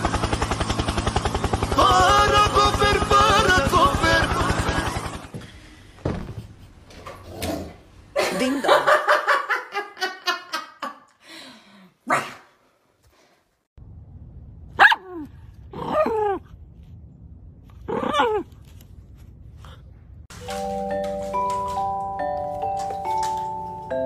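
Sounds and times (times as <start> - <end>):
dogs barking: 14.8 - 15.1.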